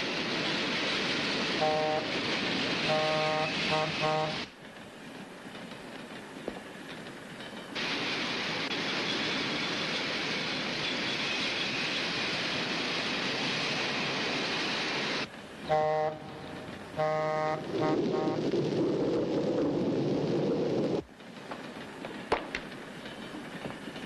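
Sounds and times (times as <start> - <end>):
train rushing past: 0.0 - 24.0
train horn blasts: 1.6 - 2.2, 2.8 - 4.5, 15.7 - 18.4.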